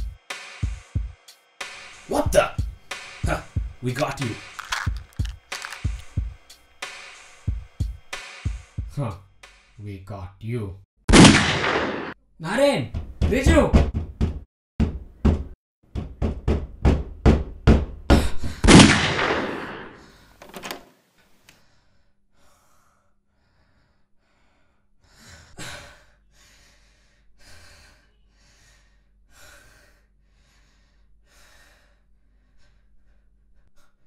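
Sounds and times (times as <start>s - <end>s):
fists pounding on wooden door: 12.9s - 18.6s.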